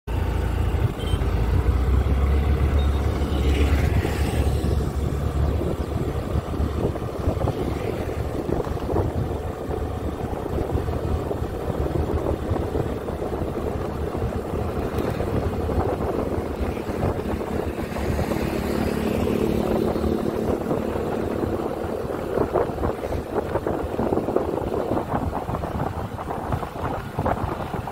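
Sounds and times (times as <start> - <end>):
motorcycle engine: 0.1 - 27.9
wind rushing over microphone: 0.1 - 27.9.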